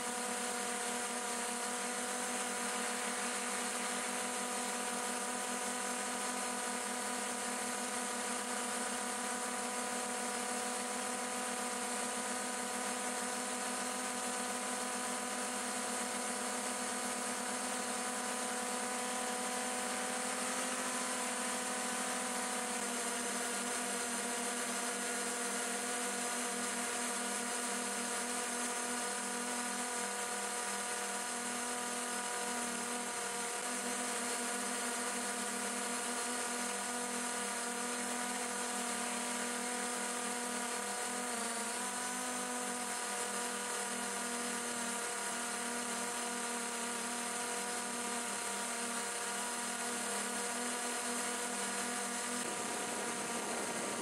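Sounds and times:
drone propellers whining: 51.1 - 54.0.

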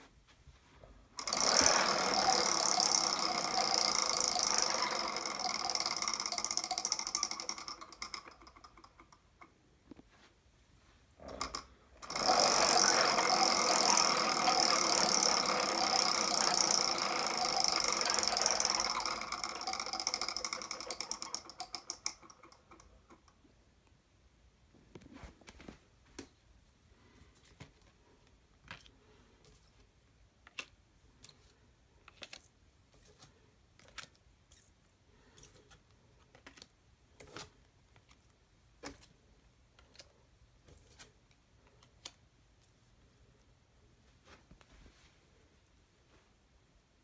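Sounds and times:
prize wheel flapper clicking: 1.2 - 9.3, 11.3 - 23.4.

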